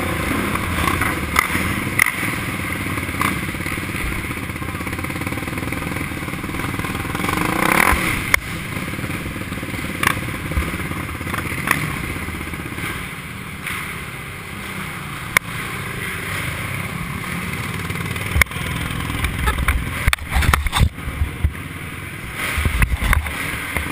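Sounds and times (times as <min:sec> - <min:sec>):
quad engine running: 0:00.0 - 0:23.9
clicks and clatter: 0:18.3 - 0:21.6, 0:22.4 - 0:23.9.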